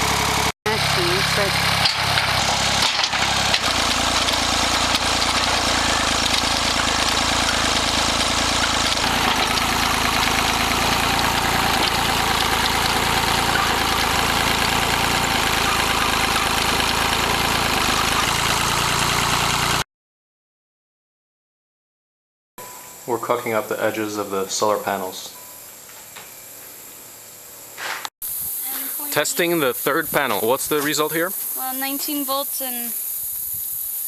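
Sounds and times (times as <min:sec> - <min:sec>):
tractor engine running: 0:00.0 - 0:19.8, 0:28.3 - 0:33.1.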